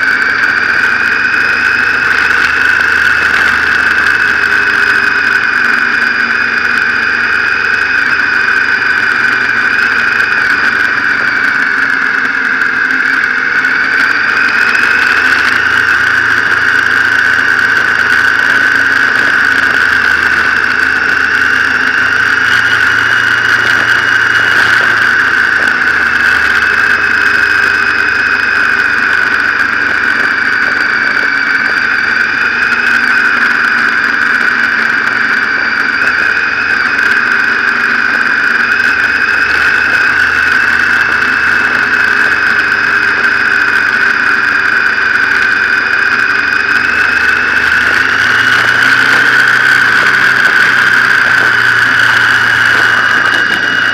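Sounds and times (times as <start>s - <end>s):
high-pitched whine: 0.0s - 53.9s
motorcycle engine running: 0.0s - 53.9s.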